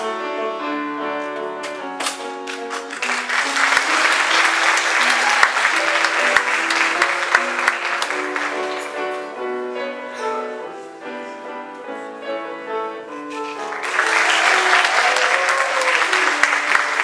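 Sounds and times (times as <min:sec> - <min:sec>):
piano melody: 0:00.0 - 0:17.0
audience applause: 0:02.5 - 0:09.1, 0:13.4 - 0:17.0.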